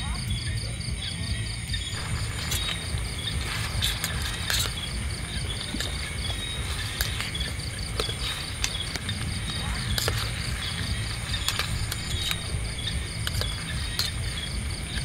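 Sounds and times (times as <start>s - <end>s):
insects chirping: 0.0s - 15.0s
low rumble: 0.0s - 15.0s
sharp clicks and knocks: 1.9s - 15.0s.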